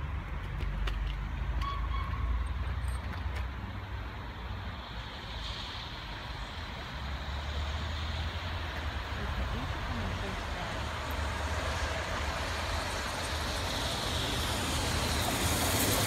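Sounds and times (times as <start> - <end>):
distant steam train rumble: 0.9 - 16.0
steam hiss: 4.1 - 16.0.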